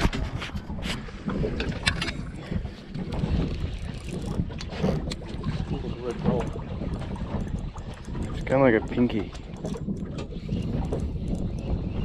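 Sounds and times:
wind buffeting microphone: 0.0s - 12.0s
sharp clicks and knocks: 6.2s - 11.8s.

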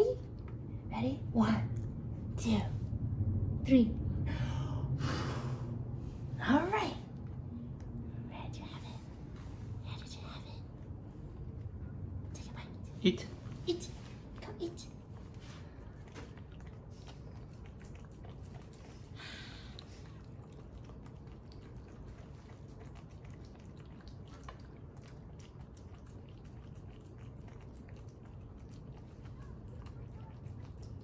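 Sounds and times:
steady low hum: 0.0s - 31.0s
puppy chewing: 13.3s - 31.0s.

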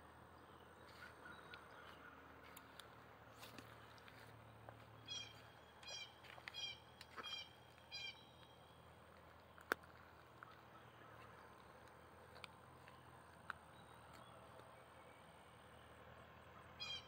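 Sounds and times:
bird calling faintly: 0.5s - 8.8s.

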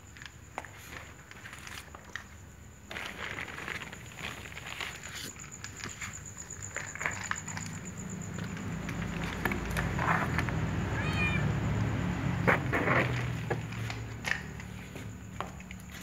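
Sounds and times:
cats eating clicks and rustles: 0.0s - 10.9s, 12.8s - 16.0s
cat meowing: 10.9s - 11.7s.

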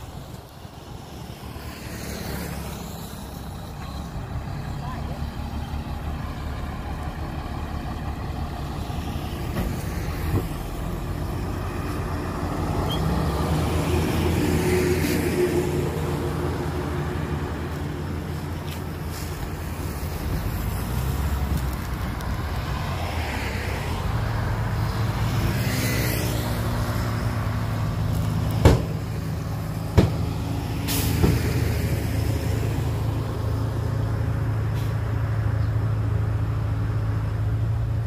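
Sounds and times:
heavy diesel engine running: 3.4s - 12.8s
sharp knocks: 28.6s - 29.0s, 29.9s - 30.2s.

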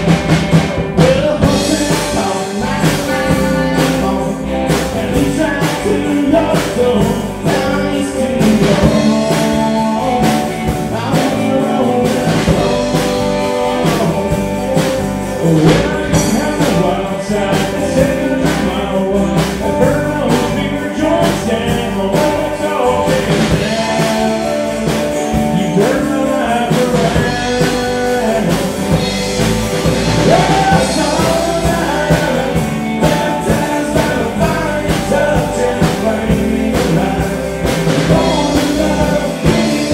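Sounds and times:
country rock band playing: 0.0s - 39.9s
lead singer singing: 0.0s - 39.9s.

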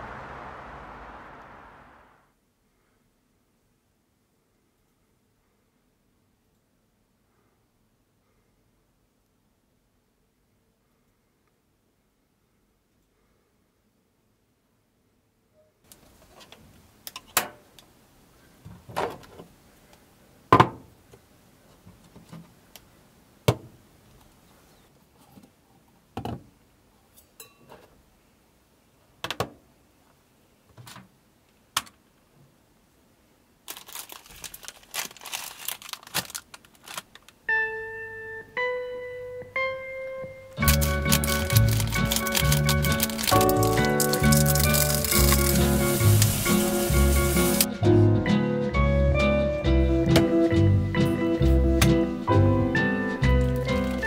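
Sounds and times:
rising keyboard notes: 0.0s - 2.2s, 37.5s - 54.0s
plastic packet crinkling: 33.6s - 37.4s, 40.6s - 47.7s, 53.4s - 54.0s
handling noises: 33.7s - 37.4s, 40.6s - 47.7s.

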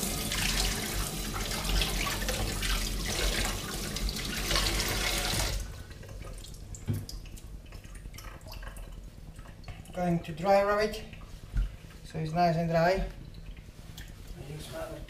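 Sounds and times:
tap water splashing into sink: 0.0s - 10.0s.

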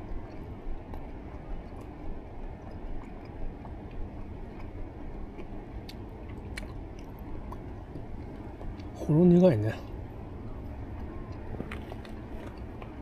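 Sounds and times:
person chewing food: 0.0s - 9.0s, 10.6s - 13.0s.

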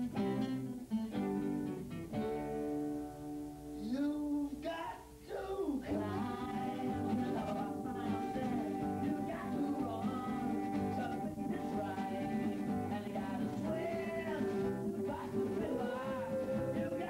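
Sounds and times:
strummed acoustic guitar: 0.0s - 4.1s, 5.9s - 17.0s
bass: 0.0s - 17.0s
man singing: 3.8s - 17.0s.

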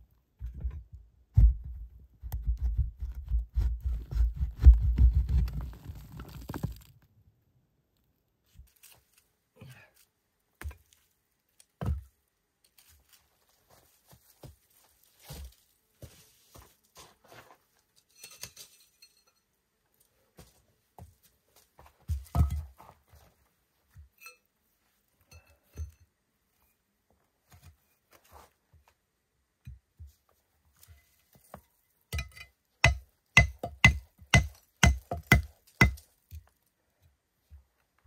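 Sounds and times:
low thuds and scraping: 0.4s - 6.9s.

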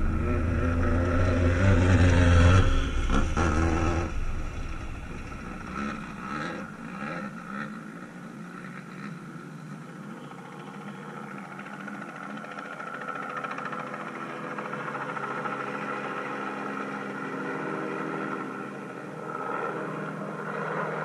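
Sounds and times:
race car engine revving: 0.0s - 9.5s
engine drone: 0.0s - 21.0s.

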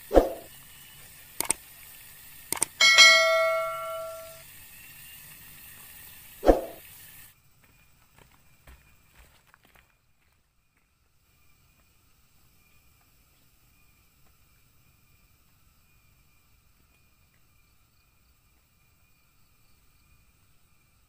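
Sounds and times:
faint outdoor sound: 0.0s - 21.0s
quick double click: 2.5s - 4.3s
notification bell ding: 2.8s - 4.4s.

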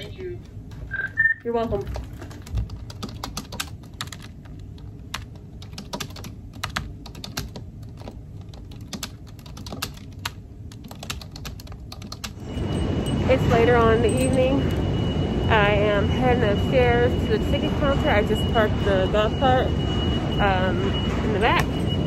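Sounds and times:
low background hum: 0.0s - 22.0s
typing on computer keyboard: 1.9s - 12.4s.

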